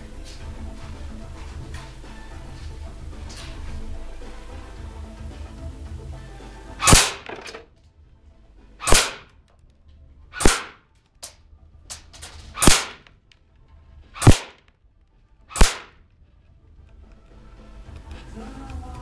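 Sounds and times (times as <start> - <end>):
airsoft gun cracks: 6.8 - 7.7, 8.8 - 9.6, 10.4 - 13.4, 14.2 - 14.8, 15.5 - 16.0.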